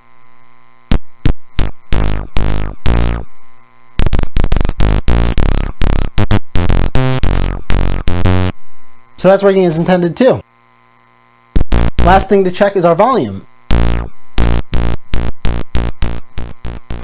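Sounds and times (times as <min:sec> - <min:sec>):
synthesizer bass notes: 0:00.9 - 0:03.4, 0:04.0 - 0:08.6, 0:11.6 - 0:12.4, 0:13.7 - 0:17.0.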